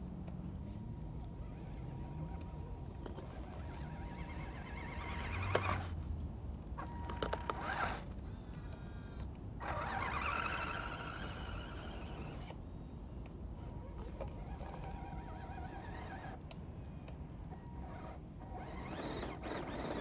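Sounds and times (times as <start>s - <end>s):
toy car electric motor whining: 1.4s - 6.0s, 6.8s - 8.1s, 9.6s - 12.6s, 13.6s - 16.5s, 17.6s - 20.0s.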